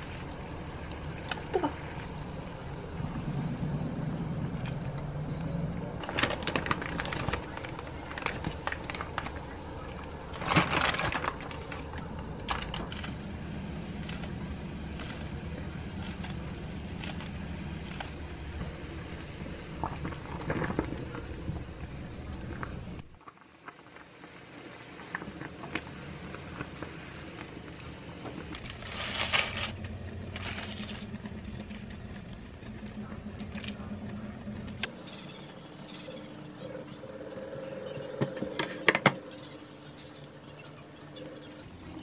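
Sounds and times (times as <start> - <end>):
soup boiling with bubbles: 0.0 - 42.0
seaweed sheet crinkling: 6.0 - 18.3, 28.5 - 32.3.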